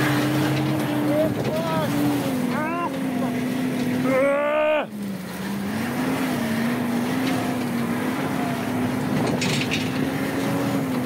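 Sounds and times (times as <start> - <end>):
engine running steadily: 0.0 - 11.0
raised voice: 4.0 - 4.9.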